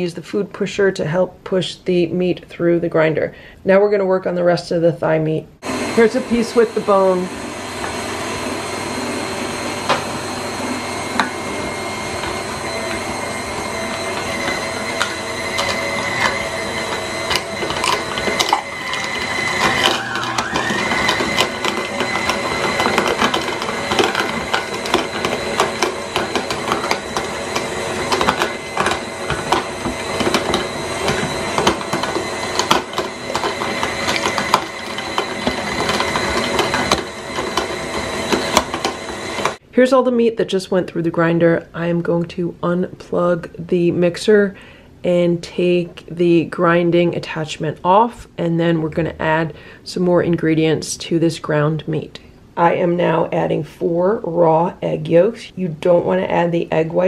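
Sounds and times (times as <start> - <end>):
meat grinder motor whine: 5.6 - 39.6.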